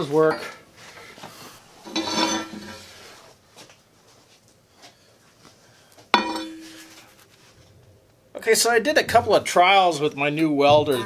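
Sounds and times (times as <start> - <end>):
metal parts clanking on steel table: 1.9 - 2.8, 6.2 - 6.8.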